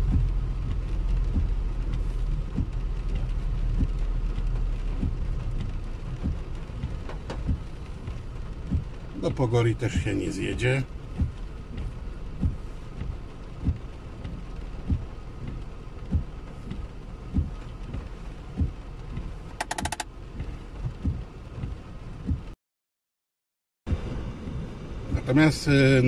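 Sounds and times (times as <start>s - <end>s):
rain hissing on car: 0.0s - 22.6s, 23.9s - 26.0s
windscreen wipers thumping: 0.0s - 22.6s, 23.9s - 26.0s
rapid clicks: 19.6s - 20.1s.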